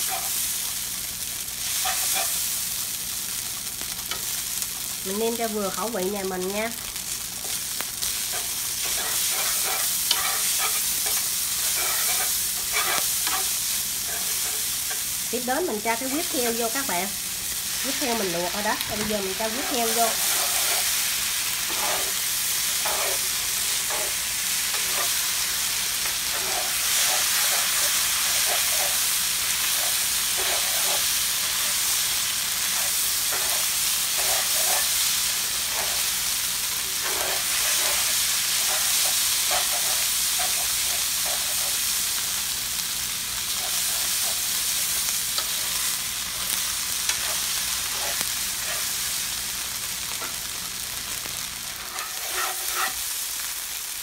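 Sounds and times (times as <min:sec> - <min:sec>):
food sizzling in a pan: 0:00.0 - 0:54.0
chopsticks scraping and tapping: 0:08.3 - 0:15.0, 0:51.8 - 0:53.0.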